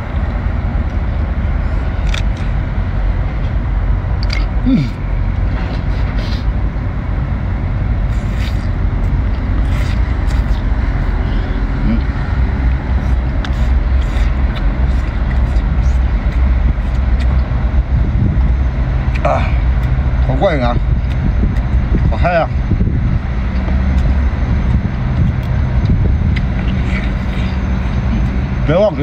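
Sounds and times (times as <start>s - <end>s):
low outdoor rumble: 0.0s - 29.0s
slurping and chewing: 4.2s - 5.0s, 8.0s - 12.2s, 12.9s - 17.7s, 23.5s - 28.4s.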